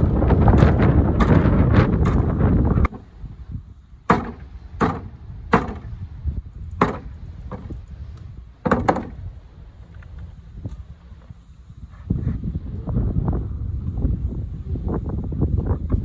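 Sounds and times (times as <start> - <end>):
hatchet chopping on wooden block: 4.1 - 5.9, 6.8 - 7.8, 8.7 - 9.1.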